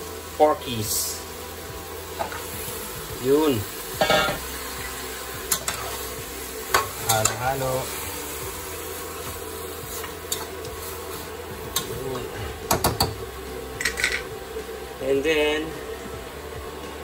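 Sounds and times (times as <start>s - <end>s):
meat sizzling in a pot: 0.0s - 17.0s.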